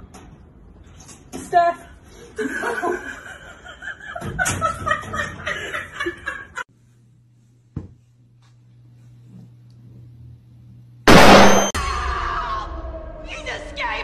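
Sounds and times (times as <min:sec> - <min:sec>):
people laughing: 0:02.4 - 0:06.7.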